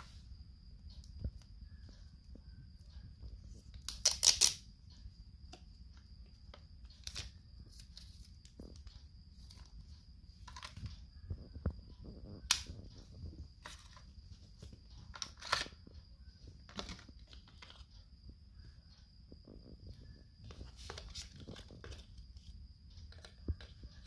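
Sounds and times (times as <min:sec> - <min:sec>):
faint high whine: 0:00.0 - 0:24.0
soft rustling of packaging: 0:00.0 - 0:24.0
plastic clicks and snaps: 0:03.7 - 0:04.7, 0:12.4 - 0:12.9.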